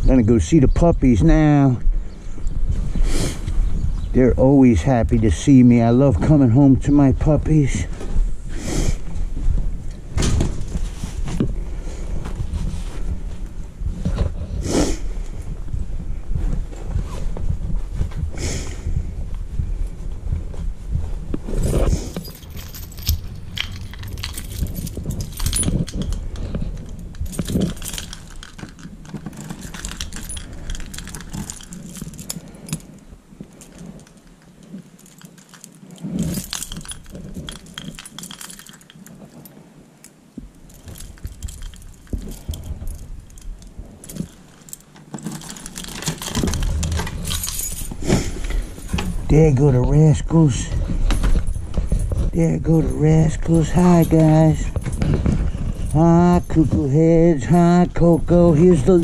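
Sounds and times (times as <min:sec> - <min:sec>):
rustling handling noise: 0:07.5 - 0:59.0
keys jangling: 0:21.6 - 0:49.7, 0:50.6 - 0:59.0.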